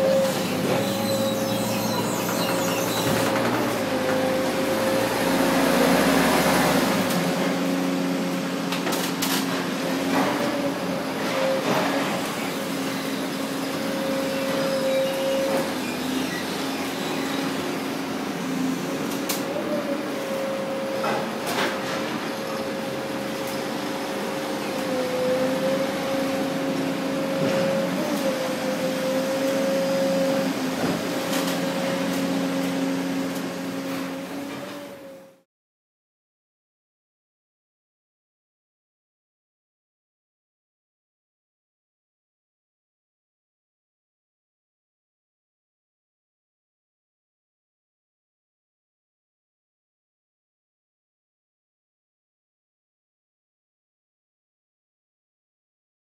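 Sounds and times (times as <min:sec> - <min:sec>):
machinery whine over hum: 0:00.0 - 0:35.4.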